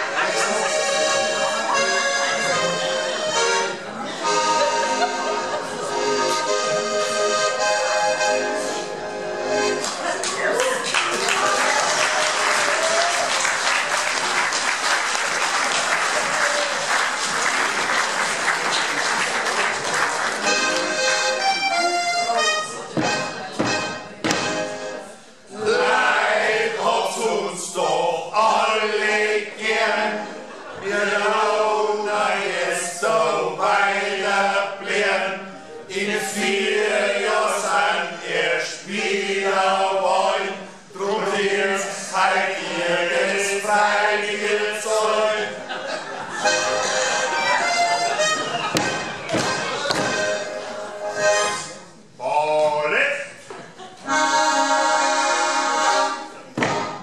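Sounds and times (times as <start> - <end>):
accordion melody: 0.0 - 10.2, 19.4 - 27.4, 28.4 - 52.1, 54.0 - 57.0
audience applauding: 9.8 - 21.2.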